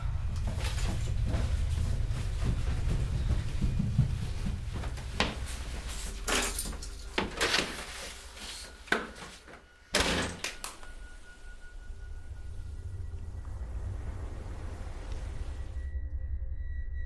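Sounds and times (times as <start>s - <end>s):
footsteps: 0.0s - 9.7s.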